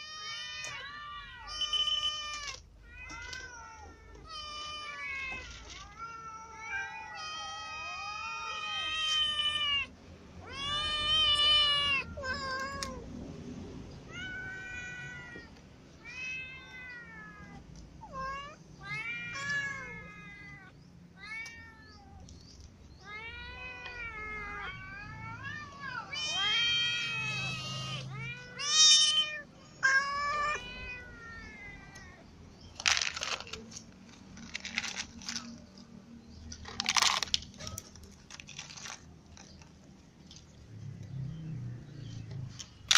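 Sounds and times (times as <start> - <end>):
cats meowing: 0.0 - 13.2, 13.9 - 35.8
kitten meowing: 23.0 - 32.2
cat crunching dry kibble: 32.7 - 35.9, 36.5 - 40.5.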